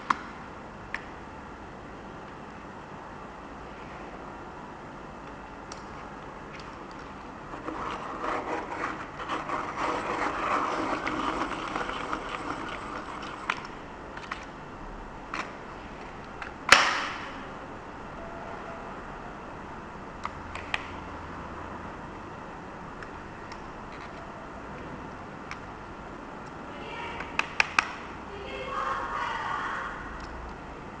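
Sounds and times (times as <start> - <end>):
pencil sharpener rasping: 7.5 - 13.5.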